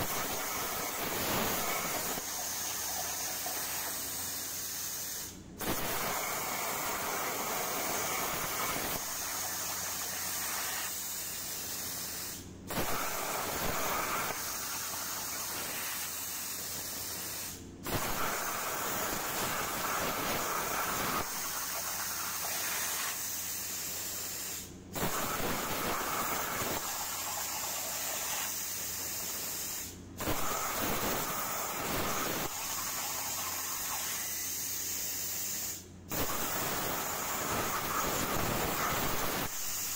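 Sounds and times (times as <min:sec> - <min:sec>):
plasma torch hissing: 0:00.0 - 0:39.9.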